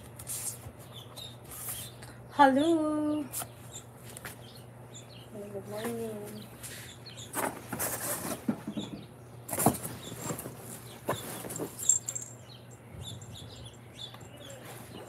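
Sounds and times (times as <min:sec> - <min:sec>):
steady low hum: 0:00.0 - 0:15.0
faint birds chirping: 0:00.5 - 0:15.0
rustles: 0:09.5 - 0:12.4, 0:14.1 - 0:15.0.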